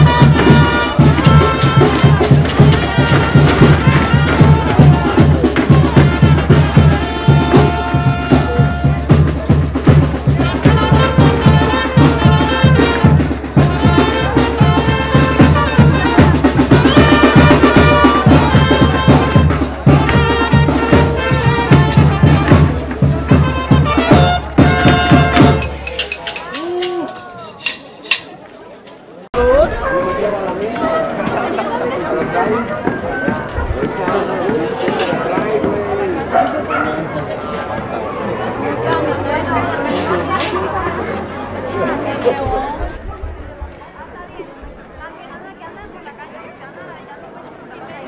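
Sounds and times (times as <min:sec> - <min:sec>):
brass playing melody: 0:00.0 - 0:26.1
bass drum beat: 0:00.0 - 0:26.6.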